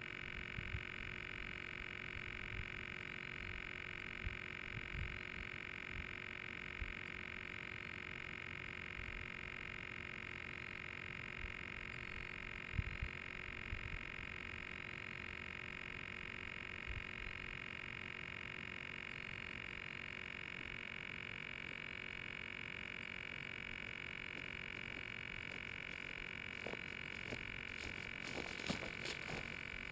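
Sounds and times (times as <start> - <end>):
high-pitched electronic whine: 0.0 - 29.9
soft ticks and rustles: 24.3 - 29.9.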